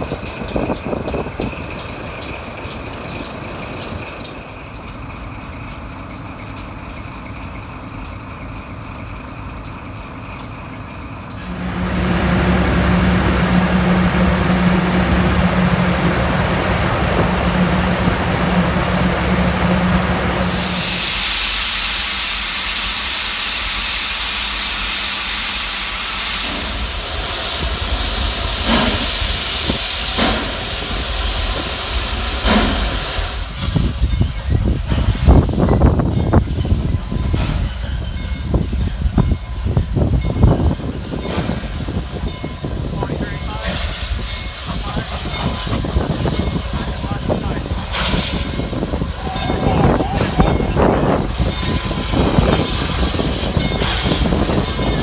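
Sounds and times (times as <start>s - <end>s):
steam hissing from cylinders: 0.0s - 55.0s
loud steady low hum: 11.4s - 20.8s.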